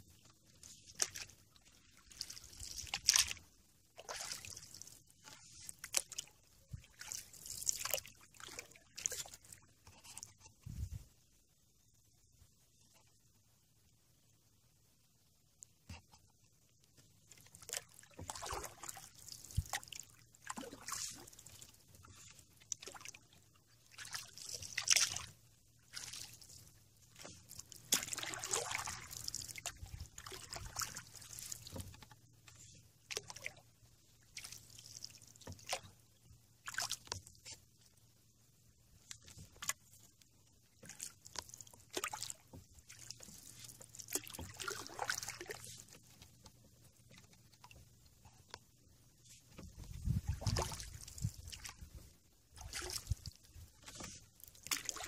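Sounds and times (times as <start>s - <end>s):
paddle splashing in water: 0.6s - 3.4s, 4.0s - 10.3s, 17.3s - 33.6s, 34.3s - 36.0s, 36.6s - 37.6s, 40.7s - 47.8s, 49.5s - 55.0s.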